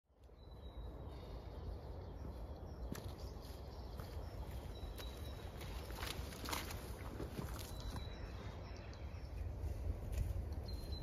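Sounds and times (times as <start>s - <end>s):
footsteps on dirt path: 2.6s - 8.4s, 9.5s - 11.0s.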